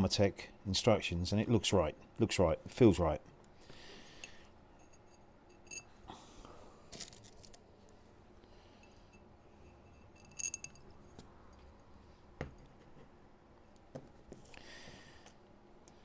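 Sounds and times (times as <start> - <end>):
metal parts clicking and clinking: 4.8 - 5.9, 6.9 - 7.6, 9.8 - 11.0.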